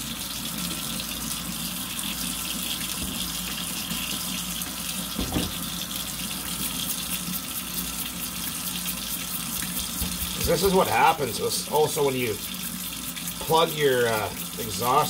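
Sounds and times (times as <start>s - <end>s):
tap water running: 0.0s - 15.0s
knock: 5.2s - 5.6s.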